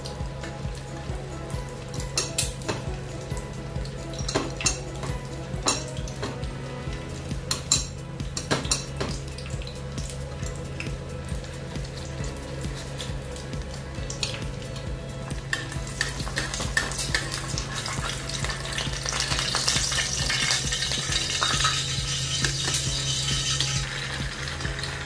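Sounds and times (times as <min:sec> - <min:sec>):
food sizzling in frying pans: 0:00.0 - 0:25.0
metal spatula scraping pan: 0:19.9 - 0:24.2.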